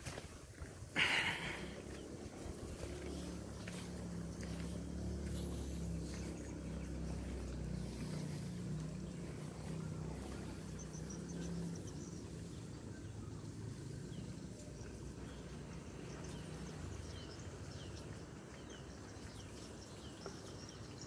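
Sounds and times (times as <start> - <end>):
leaves and brush rustling: 0.0 - 15.4
low engine drone: 0.3 - 21.0
deep rumble: 1.0 - 12.7.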